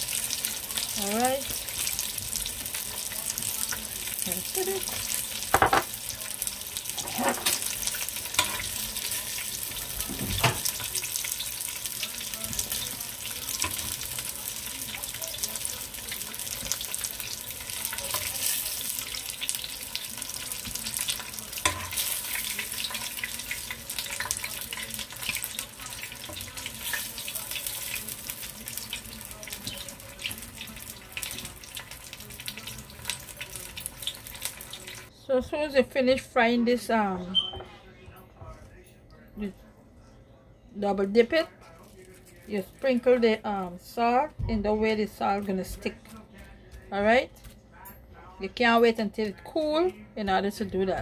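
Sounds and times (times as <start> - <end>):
hot oil sizzling and crackling: 0.0 - 35.1.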